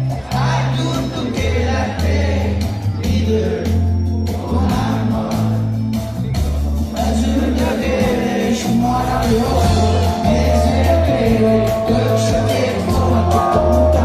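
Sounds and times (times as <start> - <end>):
live band music: 0.0 - 14.0.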